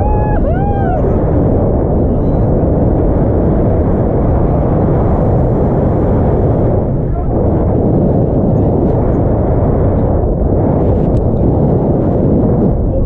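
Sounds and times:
person whooping: 0.0s - 1.2s
wind buffeting microphone: 0.0s - 13.0s.

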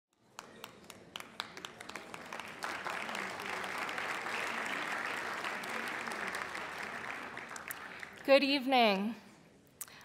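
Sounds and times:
audience applauding: 0.3s - 8.3s.

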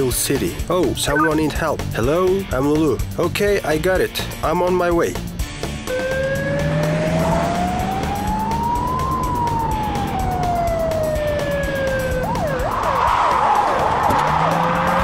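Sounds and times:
ambulance siren wailing and yelping: 5.8s - 15.0s.

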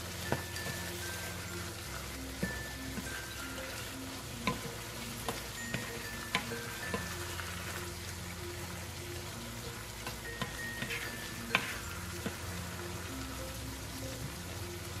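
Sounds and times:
light background music: 0.0s - 15.0s
stew simmering and bubbling: 0.0s - 15.0s
spoon knocking against pan: 4.4s - 4.7s.

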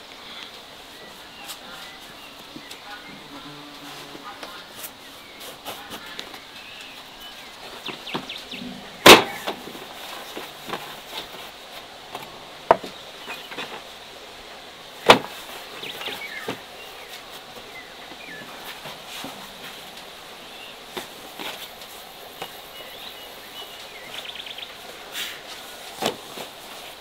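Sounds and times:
sharp knocks: 7.9s - 9.8s.

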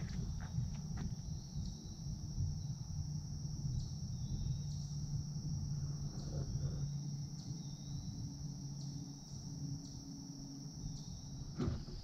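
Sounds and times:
crickets chirring: 0.0s - 12.0s
low rumble: 0.0s - 12.0s.

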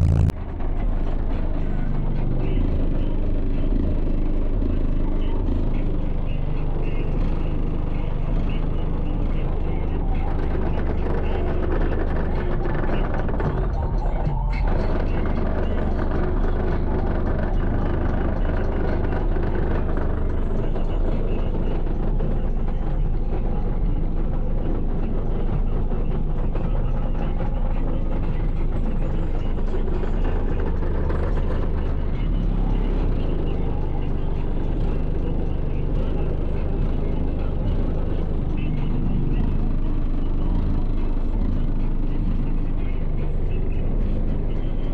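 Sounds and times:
deep bass music: 0.0s - 44.9s.

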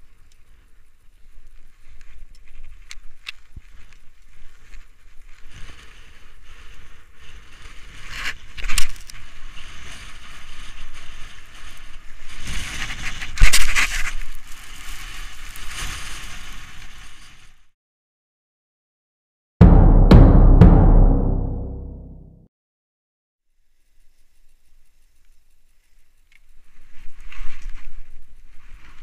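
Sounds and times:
skis scraping over snow: 0.4s - 17.6s.

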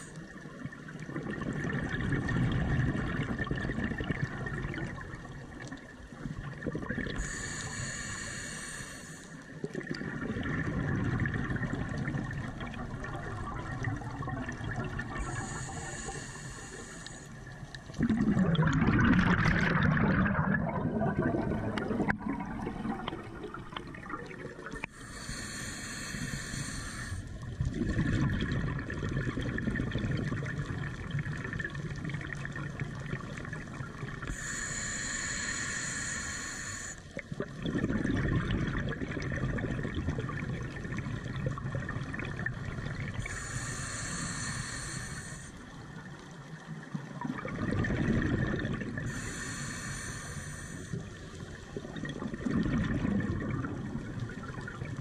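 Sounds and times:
exhaled bubbles gurgling: 0.0s - 55.0s
regulator inhalation hiss: 7.2s - 9.5s, 15.2s - 17.6s, 24.9s - 27.4s, 34.3s - 37.2s, 43.2s - 45.8s, 49.1s - 51.2s.

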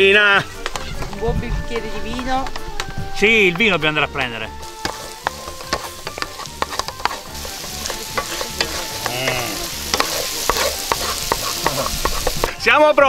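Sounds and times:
food sizzling in frying pan: 4.0s - 13.0s
wooden spoon scraping pan: 4.6s - 12.6s.

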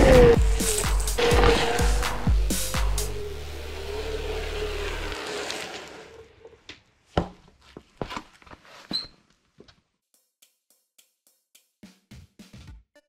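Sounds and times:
electric board motor whine: 0.0s - 6.5s.

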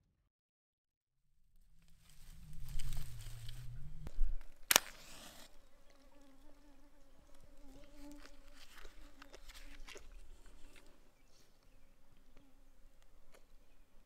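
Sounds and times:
match striking and flaring: 4.6s - 5.6s
flying insect buzzing: 5.0s - 9.3s.

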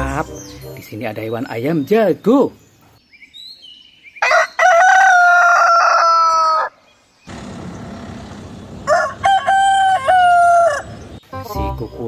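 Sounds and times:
rooster crowing: 4.2s - 6.8s, 8.8s - 11.0s.

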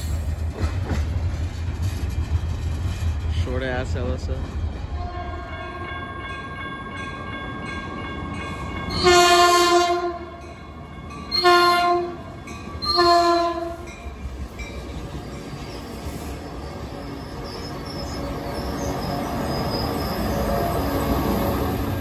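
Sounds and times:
train rumbling on rails: 0.0s - 22.0s
train horn blasts: 5.0s - 6.0s, 8.9s - 10.4s, 11.3s - 13.9s.

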